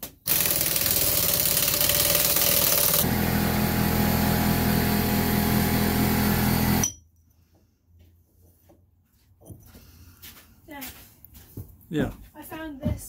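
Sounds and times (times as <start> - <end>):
pneumatic impact wrench rattling: 0.2 - 3.1.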